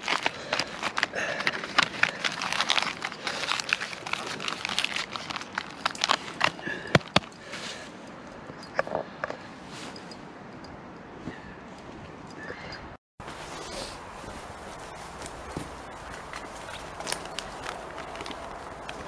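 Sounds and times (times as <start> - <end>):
aluminium foil crinkling: 0.0 - 6.8, 14.2 - 19.0.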